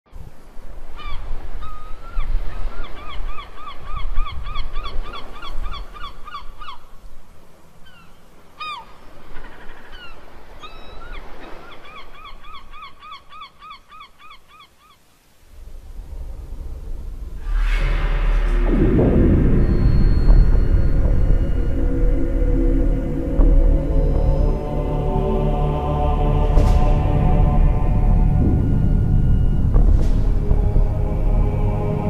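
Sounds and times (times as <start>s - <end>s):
low steady rumble: 15.5s - 32.0s.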